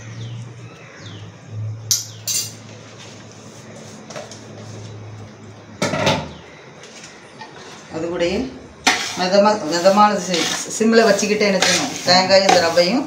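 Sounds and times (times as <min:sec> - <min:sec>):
metal ladle clinking against pot: 0:01.9 - 0:02.6.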